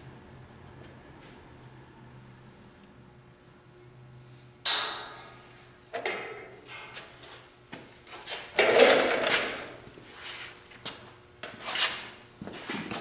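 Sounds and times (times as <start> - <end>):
sharp knocks on metal: 4.7 - 5.4.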